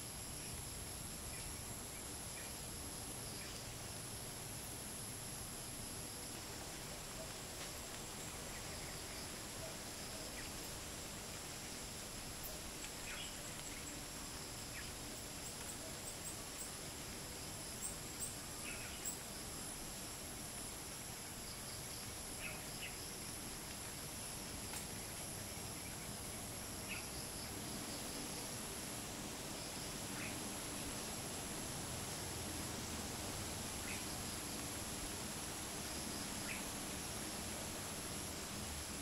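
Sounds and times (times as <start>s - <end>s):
crickets and cicadas trilling: 0.0s - 39.0s
light wind hiss: 0.0s - 39.0s.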